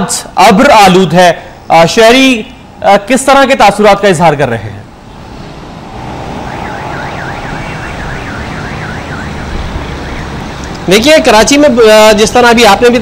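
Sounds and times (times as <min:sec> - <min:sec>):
road traffic noise: 0:00.0 - 0:13.0
warbling siren: 0:05.0 - 0:10.7.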